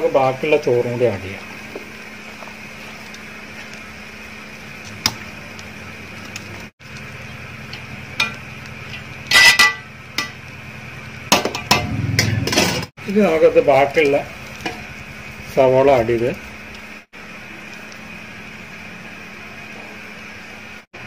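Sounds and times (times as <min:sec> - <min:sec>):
low background hum: 0:00.0 - 0:21.0
metal spoon scraping a pot: 0:09.2 - 0:09.8.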